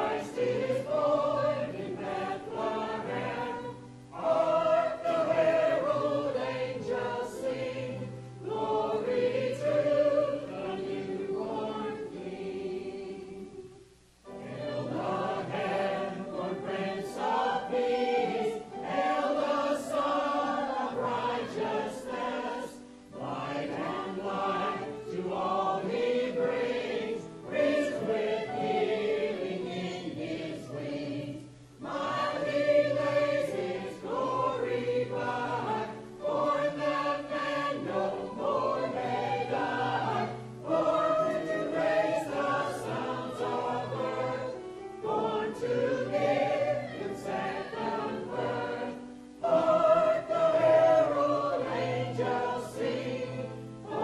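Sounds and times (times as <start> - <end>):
church choir singing: 0.0 - 54.0.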